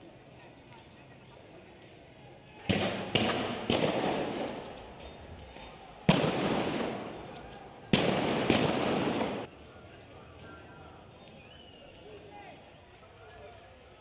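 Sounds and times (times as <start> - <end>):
gunshots echoing: 2.7 - 4.8, 6.1 - 9.5.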